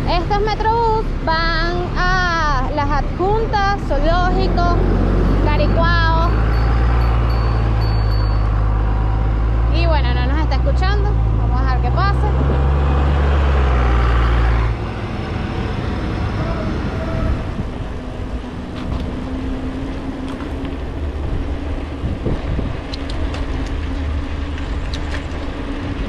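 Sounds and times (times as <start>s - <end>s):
bus engine rumbling: 0.0s - 26.0s
street traffic noise: 0.0s - 26.0s.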